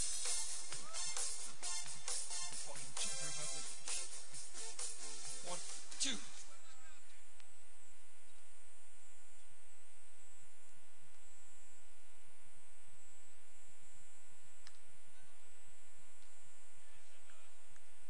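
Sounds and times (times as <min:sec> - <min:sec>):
electrical mains hum: 0:00.0 - 0:18.0
faint click: 0:14.6 - 0:14.8.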